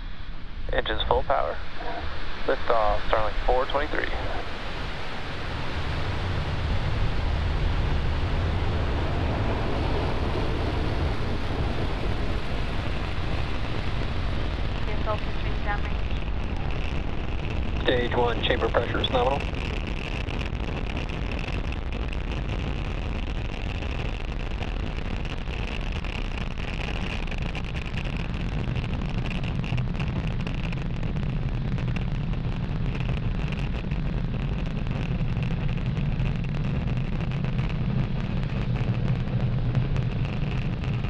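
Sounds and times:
rocket engines rumbling: 0.0 - 41.0.

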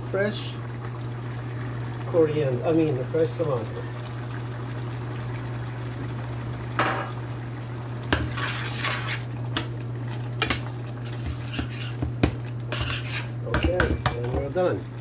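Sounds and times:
metal spoon scraping a pan: 8.1 - 9.3, 10.4 - 12.1, 12.7 - 14.2.

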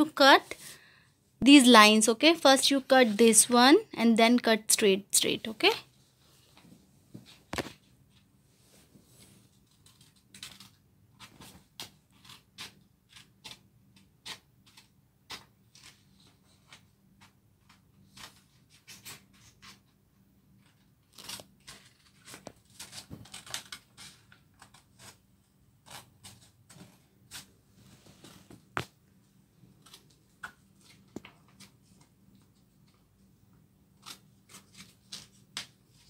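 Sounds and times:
scissors snipping paper: 9.7 - 19.9, 20.6 - 25.2, 25.8 - 27.5, 34.0 - 36.0.

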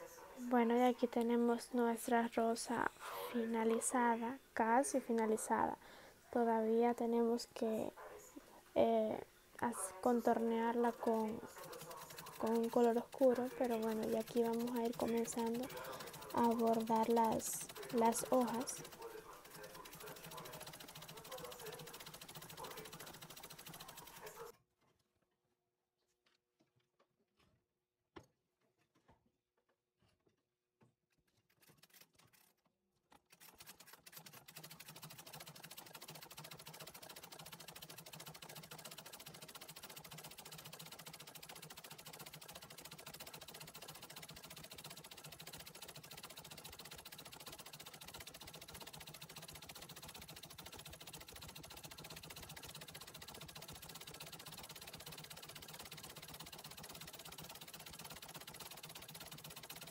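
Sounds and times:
treadle sewing machine stitching: 9.8 - 24.5, 33.2 - 59.9.

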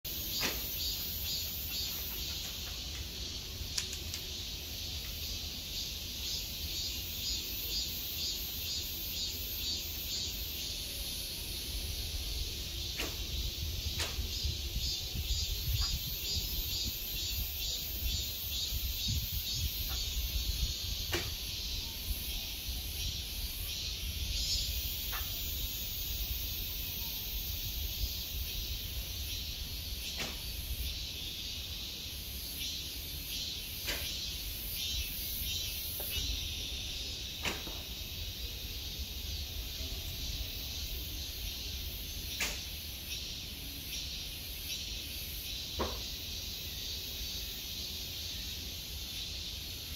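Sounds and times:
cicada chorus buzzing: 0.0 - 49.9
wind rumbling on microphone: 11.7 - 25.5.

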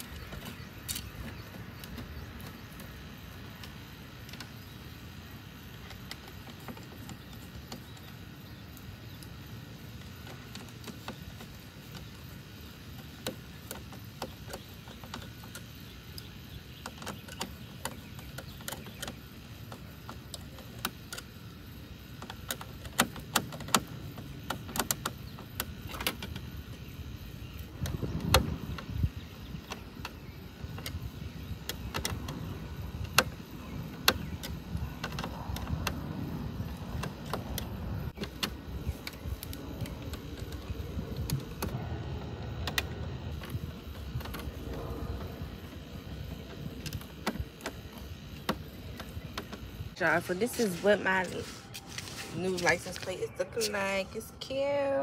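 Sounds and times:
low steady rumble: 26.7 - 50.8.

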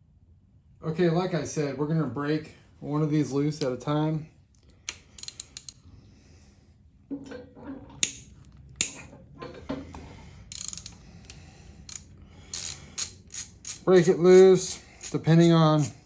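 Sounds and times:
hand ratchet clicking: 4.9 - 5.8, 10.5 - 16.0.

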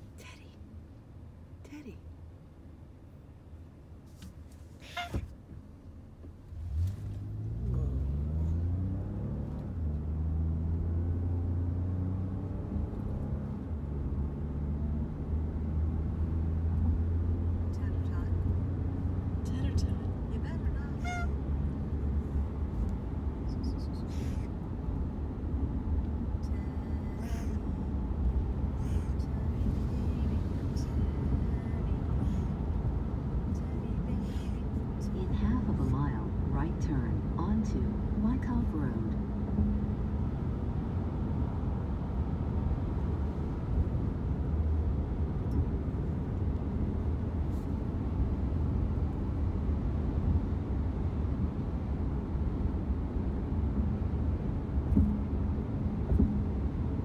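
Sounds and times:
road rumble inside car: 0.0 - 57.0
cat honking call: 21.0 - 21.4.

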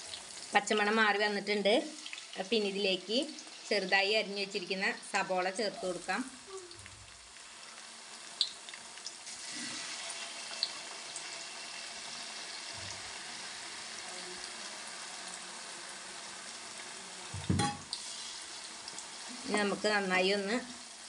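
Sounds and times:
onions sizzling in hot oil: 0.0 - 21.0
short knock: 17.4 - 17.8.

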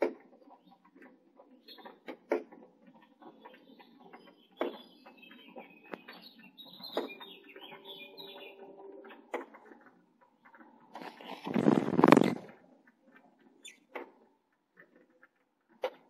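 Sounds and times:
high finch chirping: 3.2 - 9.3, 13.6 - 14.0.

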